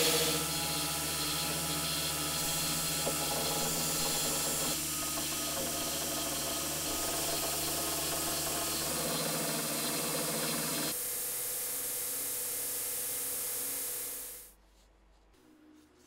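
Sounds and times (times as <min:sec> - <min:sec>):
belt grinder grinding steel: 0:00.0 - 0:11.0.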